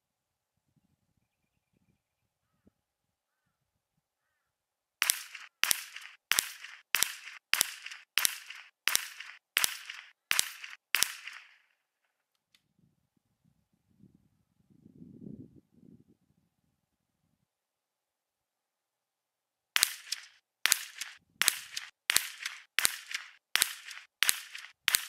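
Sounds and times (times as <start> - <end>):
rifle shots: 5.0 - 11.7, 19.8 - 25.0.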